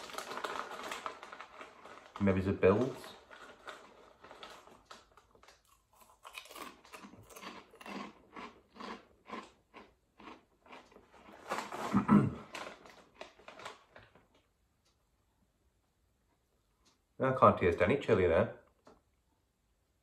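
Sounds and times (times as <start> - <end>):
crunchy snack chewing: 3.3 - 13.8.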